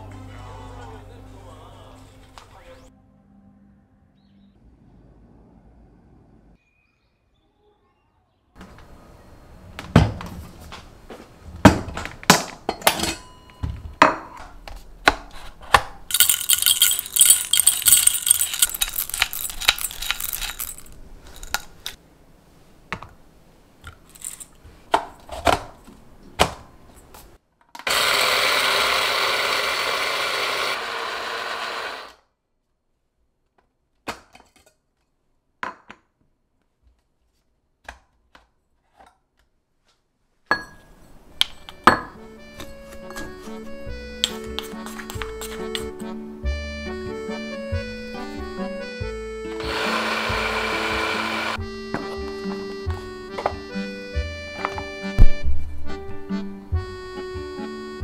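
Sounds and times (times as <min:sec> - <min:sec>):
coffee beans pouring rattling: 0:16.1 - 0:22.0, 0:24.1 - 0:24.5
glass jar and metal cup clinking: 0:16.1 - 0:22.0, 0:24.1 - 0:24.6, 0:40.5 - 0:46.0
electric coffee grinder grinding: 0:27.8 - 0:32.2, 0:49.5 - 0:51.6.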